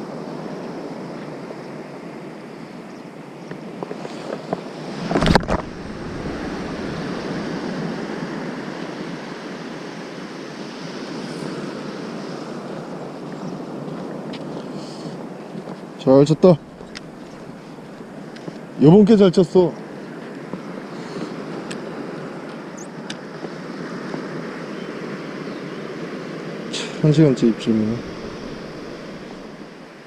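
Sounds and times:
wind on microphone: 4.0s - 9.9s, 10.6s - 19.1s, 26.5s - 30.0s
surf washing onto beach: 4.3s - 13.2s, 13.8s - 19.6s, 25.9s - 30.0s
fishing rod whooshing: 4.9s - 8.0s.

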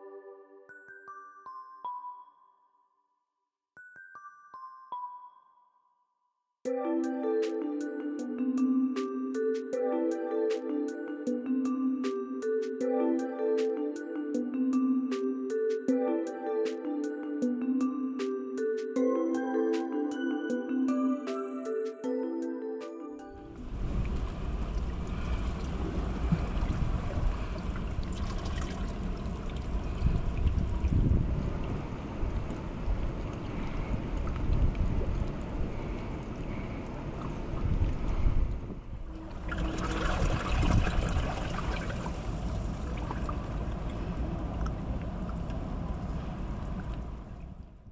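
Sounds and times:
water trickling among rocks: 23.6s - 31.7s, 39.2s - 47.6s
small splashes and drips: 23.7s - 31.0s, 39.3s - 47.2s.

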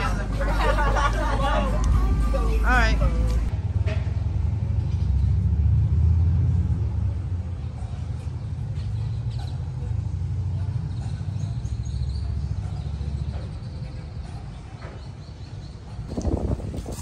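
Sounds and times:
wind buffeting microphone: 14.2s - 17.0s.

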